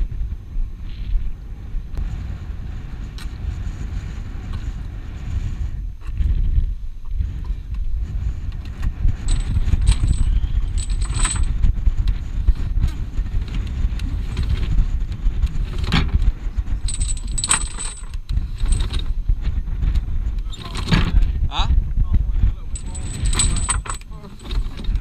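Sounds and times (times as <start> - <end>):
low rumble: 9.1 - 25.0
anchor chain rattling on wood: 9.2 - 11.6, 12.8 - 14.8, 15.4 - 19.2, 20.4 - 21.2, 22.7 - 25.0.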